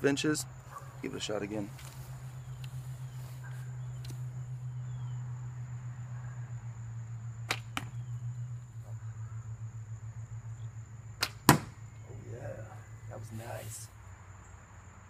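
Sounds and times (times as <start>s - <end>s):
steady low hum: 0.0s - 15.0s
bow sharp clicks: 1.7s - 2.8s, 3.4s - 4.4s, 7.4s - 9.0s, 11.2s - 11.8s.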